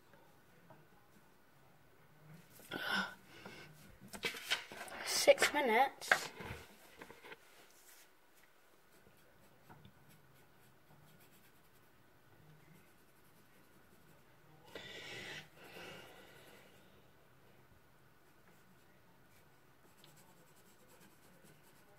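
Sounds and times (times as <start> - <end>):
pencil scratching on paper: 8.9 - 12.0, 12.7 - 14.2, 19.8 - 21.9.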